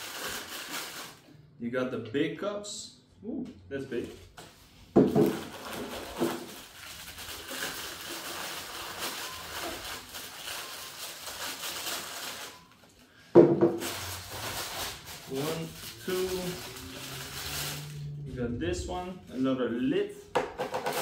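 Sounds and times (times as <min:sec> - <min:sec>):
plastic wrapping crinkling: 0:00.0 - 0:01.3, 0:05.1 - 0:18.2.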